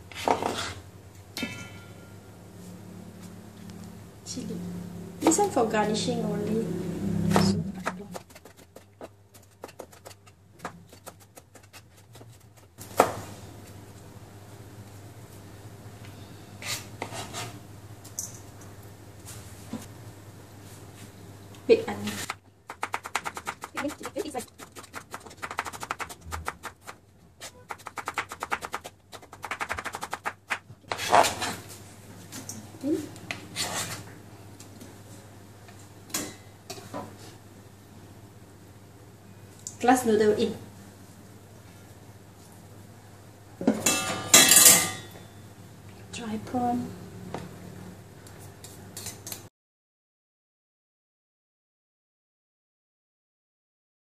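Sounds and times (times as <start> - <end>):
blade scraping across board: 0.1 - 0.8, 16.6 - 17.6, 30.9 - 31.6
knife chopping on cutting board: 7.3 - 13.2, 22.1 - 31.6.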